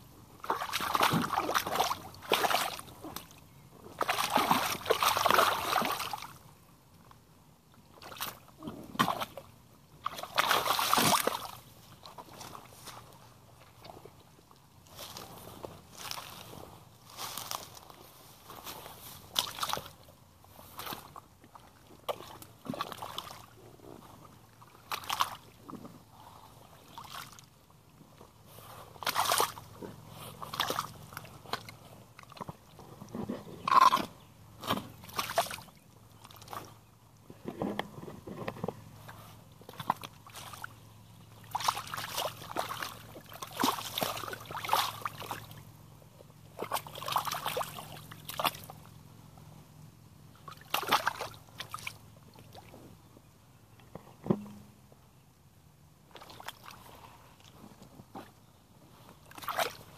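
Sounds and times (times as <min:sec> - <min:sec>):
boots stamping through mud: 0:00.4 - 0:03.3, 0:03.9 - 0:06.3, 0:09.0 - 0:09.4, 0:10.0 - 0:13.1, 0:14.9 - 0:16.5, 0:17.1 - 0:20.0, 0:28.9 - 0:38.9, 0:41.4 - 0:45.6
mud splashing and squelching: 0:00.4 - 0:06.4, 0:07.9 - 0:16.5, 0:18.6 - 0:37.2, 0:39.0 - 0:49.4, 0:50.2 - 0:52.8, 0:56.1 - 0:57.6, 0:59.2 - 0:59.9.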